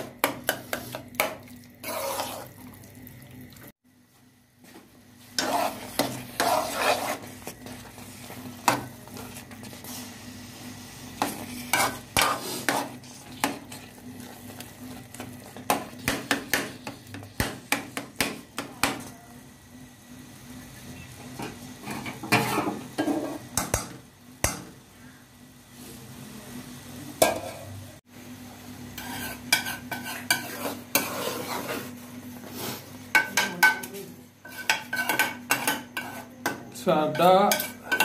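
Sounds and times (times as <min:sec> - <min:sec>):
soft sizzle of frying: 0:00.0 - 0:38.0
spoon scraping metal pot: 0:01.8 - 0:02.6, 0:05.4 - 0:08.0, 0:11.2 - 0:16.6, 0:29.0 - 0:31.9, 0:34.4 - 0:36.4.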